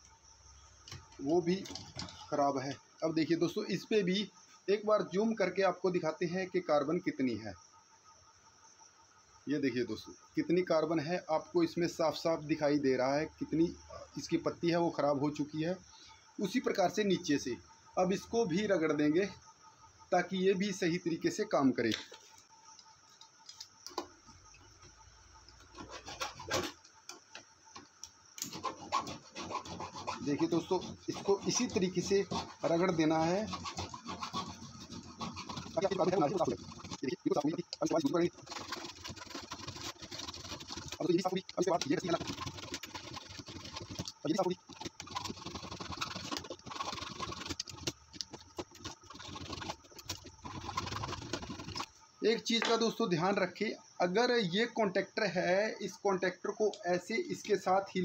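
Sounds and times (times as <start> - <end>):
file scraping metal contacts: 0.9 - 2.3, 25.6 - 26.8, 28.4 - 51.9.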